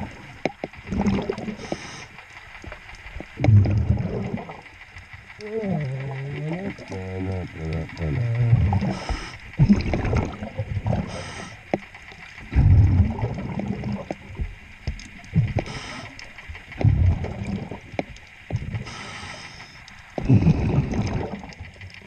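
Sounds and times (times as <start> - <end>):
gurgling exhaust bubbles: 0.0 - 2.1, 3.2 - 4.8, 5.4 - 11.7, 12.4 - 22.0
diver breathing through regulator: 1.5 - 2.2, 8.5 - 9.5, 10.9 - 11.7, 15.4 - 17.6, 18.6 - 21.4
muffled voice through regulator: 5.4 - 9.3.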